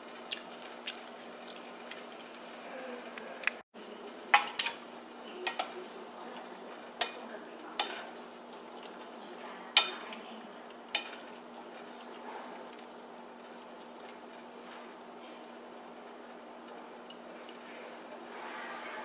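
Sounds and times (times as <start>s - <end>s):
chopsticks clicking against pot: 5.4s - 5.7s, 7.0s - 7.2s.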